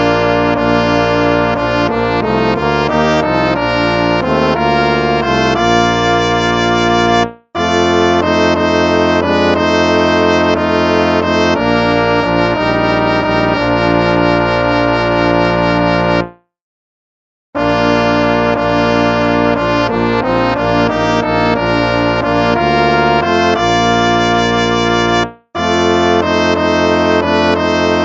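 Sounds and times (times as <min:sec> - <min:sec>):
brass hymn chords: 0:00.0 - 0:16.4, 0:17.6 - 0:28.0.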